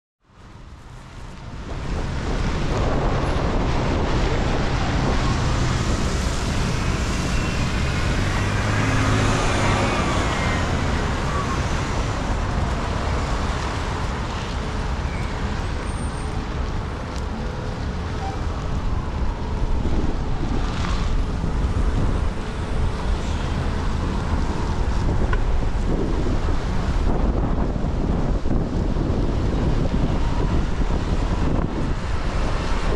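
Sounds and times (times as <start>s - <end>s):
street traffic rumble: 0.2s - 32.9s
wind on microphone: 0.8s - 32.9s
vehicle engine pulling away: 2.6s - 13.7s.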